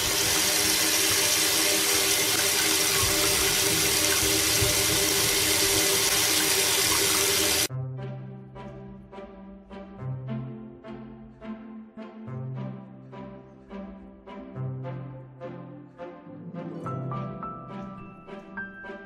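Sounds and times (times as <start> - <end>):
faucet running into steel sink: 0.0 - 7.7
light background music: 7.7 - 19.0.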